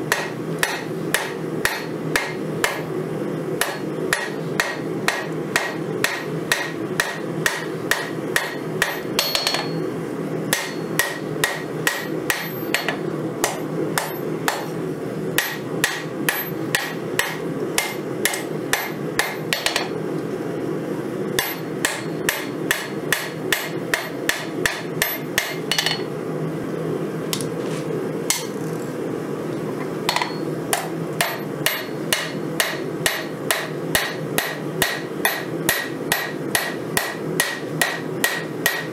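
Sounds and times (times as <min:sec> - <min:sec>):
hammer striking on anvil: 0:00.1 - 0:02.9, 0:03.6 - 0:09.9, 0:10.5 - 0:14.8, 0:15.4 - 0:19.9, 0:21.4 - 0:26.1, 0:28.3 - 0:28.5, 0:30.1 - 0:38.9.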